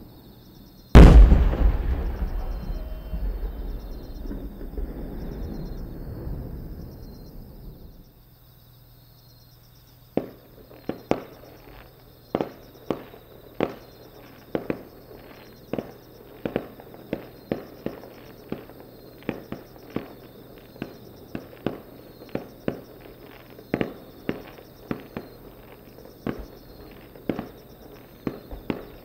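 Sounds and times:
sharp firework bangs: 1.0 - 7.7
firework shell burst rumble: 1.0 - 7.8.

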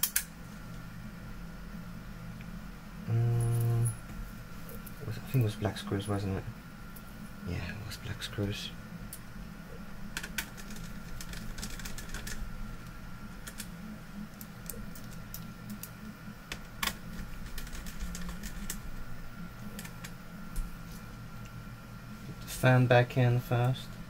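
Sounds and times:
steady hum: 0.0 - 24.0.

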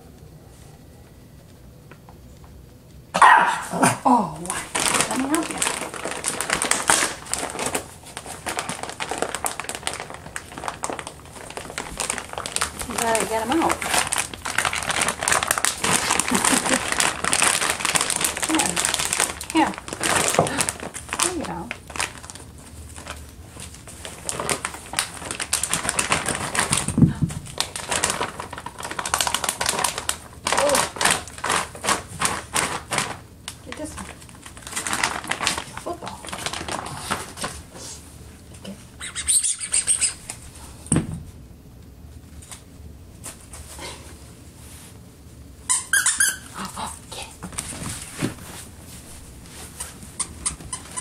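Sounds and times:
small dog yapping: 3.2 - 4.1
wrapping paper crinkling: 4.4 - 40.5, 47.4 - 51.0.

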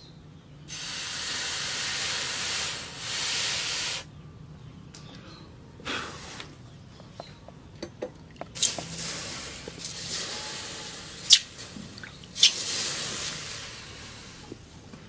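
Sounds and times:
water dripping: 7.7 - 12.7.

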